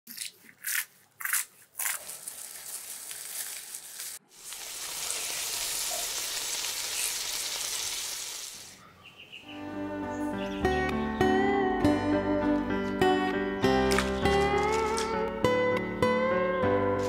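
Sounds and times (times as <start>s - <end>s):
food deep-frying in hot oil: 2.2s - 8.7s.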